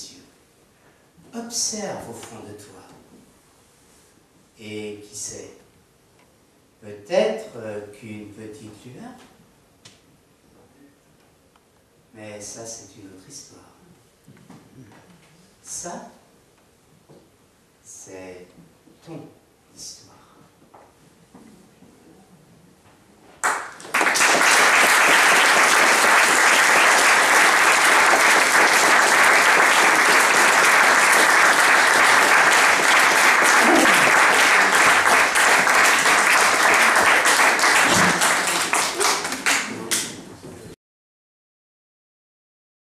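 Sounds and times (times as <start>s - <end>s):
audience applauding: 23.4s - 40.2s.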